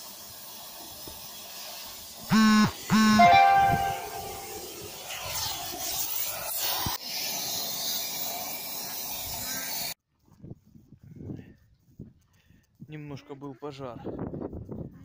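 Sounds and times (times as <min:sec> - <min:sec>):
cutting torch hissing: 0:00.0 - 0:02.9, 0:04.5 - 0:10.0.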